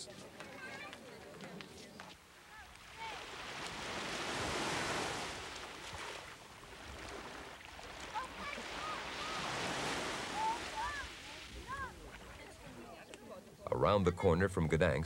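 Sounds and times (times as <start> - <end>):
waves washing on beach: 2.4 - 13.0.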